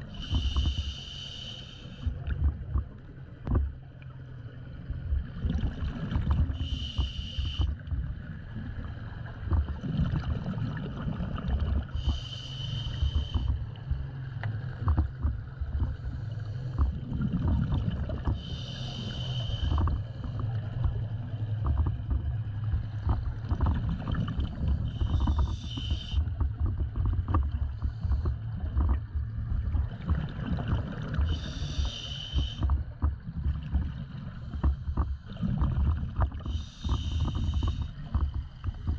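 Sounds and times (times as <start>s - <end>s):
underwater bubbles rumbling: 0.0s - 38.9s
regulator hissing inhalation: 0.3s - 2.0s, 6.6s - 7.7s, 12.0s - 13.5s, 18.4s - 19.7s, 24.9s - 26.2s, 31.3s - 32.6s, 36.5s - 38.0s.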